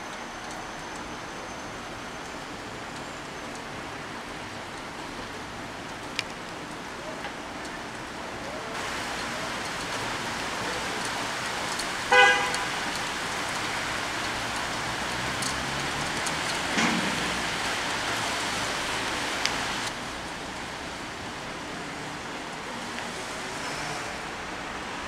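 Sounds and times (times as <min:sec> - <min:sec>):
heavy rain falling: 0:00.0 - 0:25.0
car horn toot: 0:12.1 - 0:12.9.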